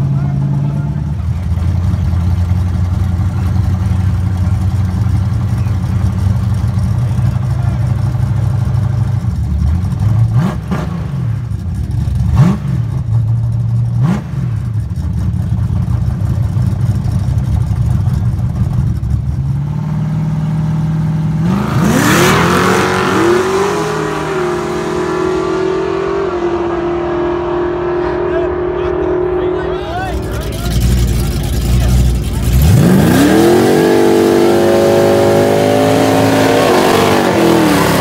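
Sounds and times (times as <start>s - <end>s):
drag car engines revving: 0.0s - 38.0s
cars launching at full throttle: 21.3s - 38.0s.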